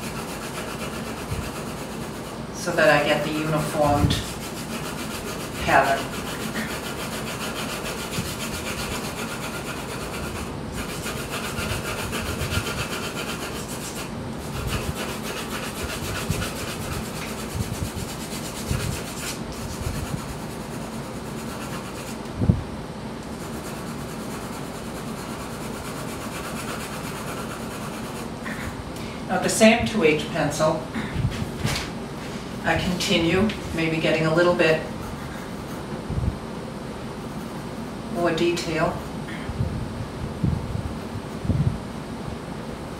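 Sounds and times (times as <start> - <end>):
pencil shading on paper: 0.0 - 2.3, 3.2 - 22.2, 23.4 - 28.3.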